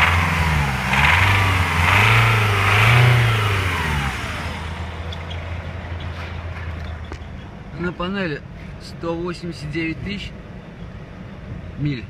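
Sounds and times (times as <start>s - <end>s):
diesel engine revving: 0.0s - 8.0s.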